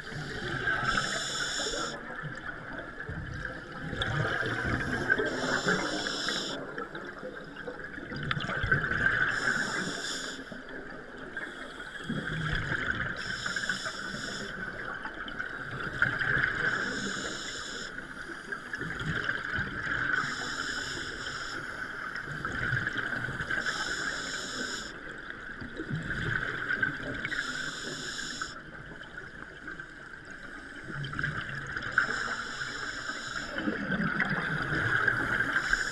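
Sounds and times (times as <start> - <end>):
diver breathing through regulator: 0.1 - 2.0, 4.5 - 6.6, 9.3 - 10.5, 13.2 - 14.6, 23.6 - 25.0, 27.3 - 28.6
rush of bubbles: 3.2 - 5.9, 33.6 - 35.9.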